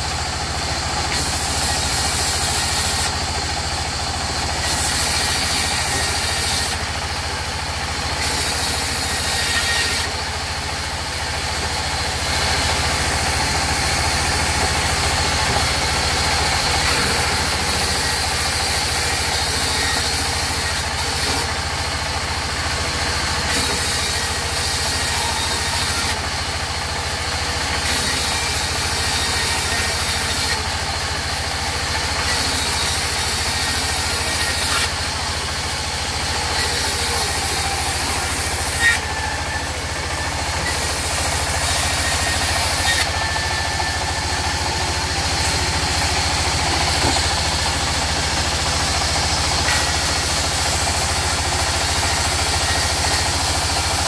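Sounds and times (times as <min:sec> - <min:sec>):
band saw machine hum: 0:00.0 - 0:54.0
saw blade hiss in wood: 0:01.1 - 0:03.2, 0:04.6 - 0:06.9, 0:08.2 - 0:10.2, 0:11.7 - 0:21.5, 0:23.4 - 0:26.2, 0:27.7 - 0:30.7, 0:31.8 - 0:47.4, 0:49.6 - 0:54.0.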